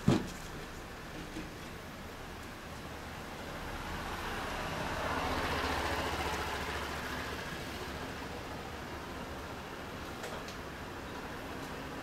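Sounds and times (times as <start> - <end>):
vehicle passing by: 3.2 - 9.4.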